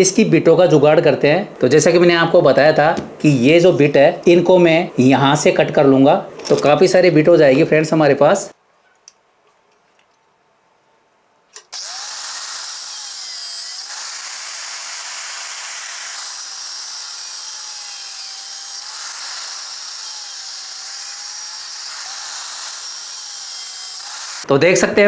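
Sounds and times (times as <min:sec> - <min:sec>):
angle grinder cutting steel: 0:11.6 - 0:24.5.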